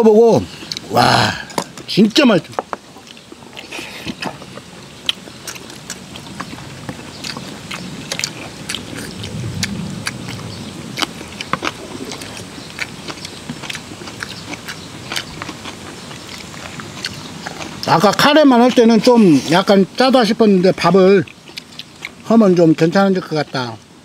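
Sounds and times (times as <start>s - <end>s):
people chewing close up: 0.4s - 1.9s, 2.5s - 24.0s
mouth clicks and smacks: 3.0s - 18.9s
low rumble: 8.6s - 12.8s.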